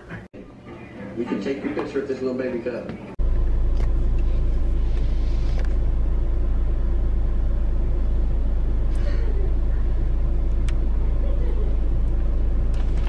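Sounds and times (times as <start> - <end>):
car engine idling: 3.2 - 13.0.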